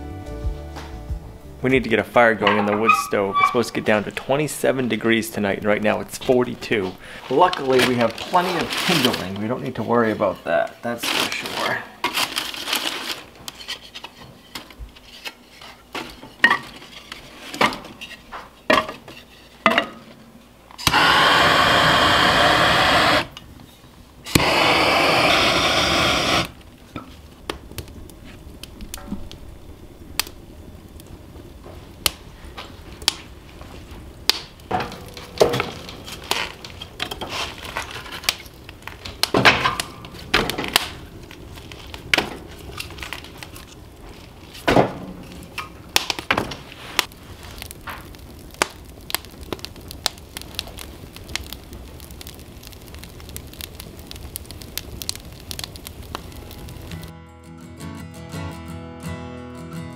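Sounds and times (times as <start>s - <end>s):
fire crackling and popping: 0.8s - 57.2s
wood and paper rustling in firebox: 2.2s - 19.7s, 20.8s - 57.1s
loud steady hisses: 20.8s - 26.8s.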